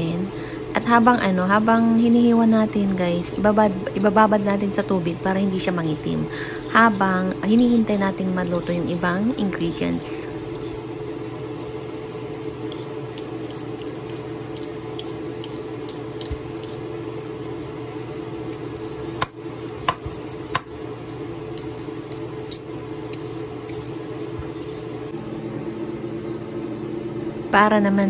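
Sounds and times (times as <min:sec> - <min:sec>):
peeler scraping potato: 0:00.0 - 0:10.8, 0:12.7 - 0:17.2, 0:21.6 - 0:24.9
steady low hum: 0:00.0 - 0:28.0.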